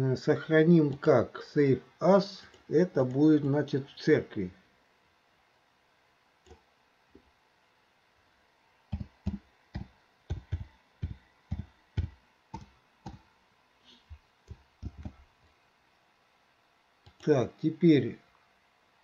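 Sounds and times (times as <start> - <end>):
computer keyboard typing: 8.9 - 13.2, 14.5 - 15.2.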